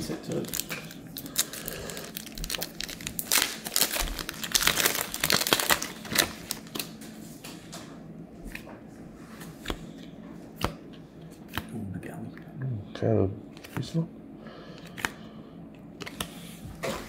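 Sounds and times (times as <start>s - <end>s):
foil pack tearing and crinkling: 0.2s - 7.0s
cards clicking and rustling: 13.6s - 14.0s, 16.0s - 16.4s.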